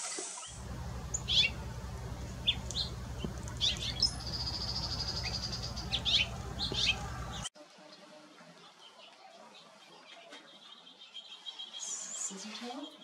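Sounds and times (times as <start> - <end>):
finch singing chirps and trill: 0.6 - 7.5
steady low hum: 0.6 - 7.5.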